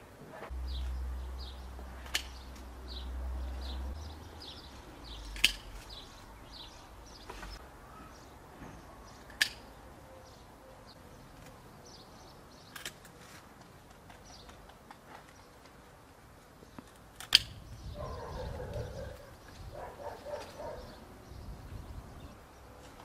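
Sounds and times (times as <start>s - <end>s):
low rumble: 0.5s - 7.1s
small birds chirping: 0.5s - 15.9s, 16.5s - 23.0s
sharp snaps: 1.9s - 2.8s, 5.2s - 6.0s.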